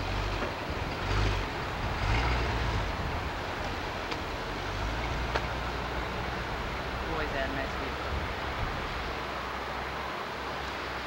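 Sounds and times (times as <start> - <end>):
car exhaust rumble pulling away: 0.0 - 7.1.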